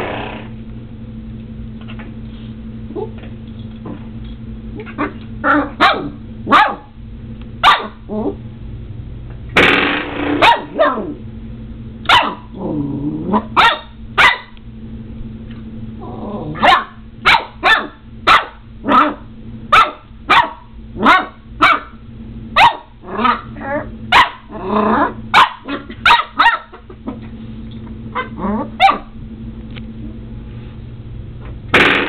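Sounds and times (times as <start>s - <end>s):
puppy yapping: 4.8s - 6.9s, 7.6s - 8.4s, 10.4s - 11.2s, 12.1s - 12.5s, 13.3s - 14.6s, 16.5s - 19.2s, 19.8s - 21.9s, 22.6s - 26.8s, 28.2s - 29.1s
puppy growling: 8.1s - 8.4s, 12.4s - 13.6s, 16.0s - 16.7s, 24.5s - 26.0s, 28.2s - 28.8s.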